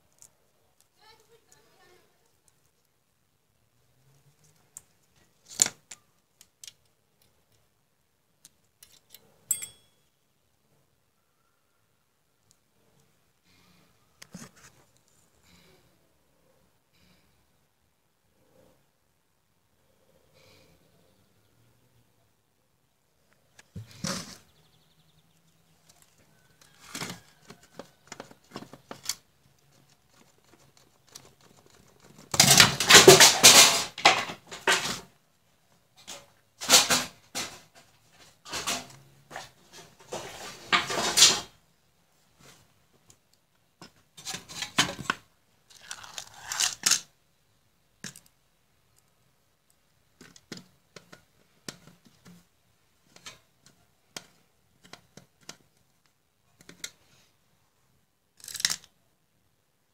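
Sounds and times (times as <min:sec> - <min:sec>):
metal case rustling and scraping: 0:36.0 - 0:41.6.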